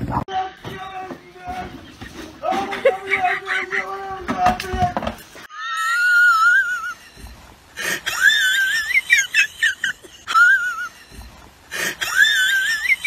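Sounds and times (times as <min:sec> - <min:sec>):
woman's wheezing laughter: 0:05.8 - 0:13.0.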